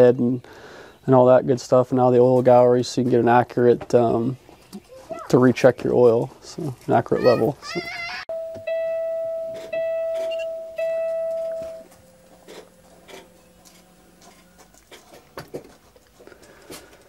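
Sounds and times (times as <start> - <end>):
dashboard warning chime: 8.3 - 14.8.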